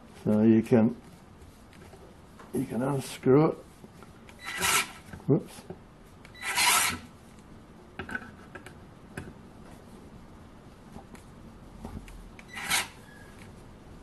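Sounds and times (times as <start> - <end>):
screw rasping into wood: 4.4 - 5.1, 6.3 - 7.1, 12.5 - 13.0.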